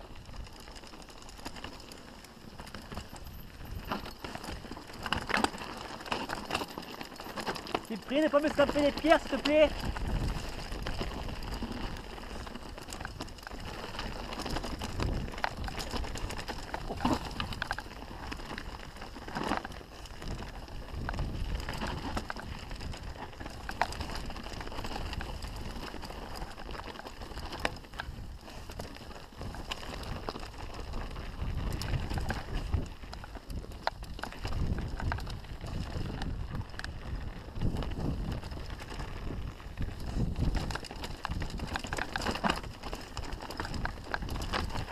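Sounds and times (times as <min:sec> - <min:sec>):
bike rattling clicks and knocks: 0:00.0 - 0:44.9
tyres crunching over stones: 0:00.0 - 0:44.9
wind on microphone: 0:08.3 - 0:17.7, 0:19.9 - 0:25.9, 0:28.0 - 0:44.9.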